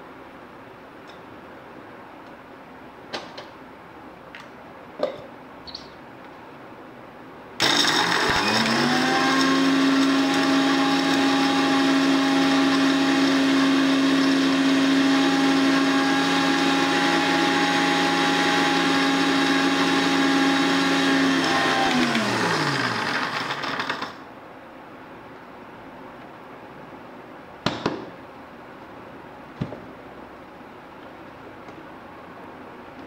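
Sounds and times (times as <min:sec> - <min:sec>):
mixer grinder motor whine: 0:07.6 - 0:24.2.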